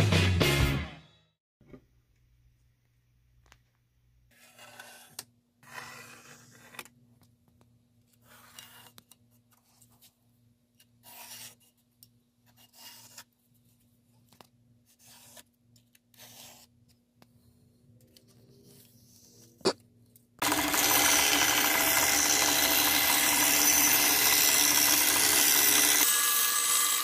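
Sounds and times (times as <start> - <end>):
pencil scratching on plywood: 4.3 - 6.9, 10.8 - 11.8, 12.4 - 13.4, 14.9 - 15.5, 16.1 - 16.9.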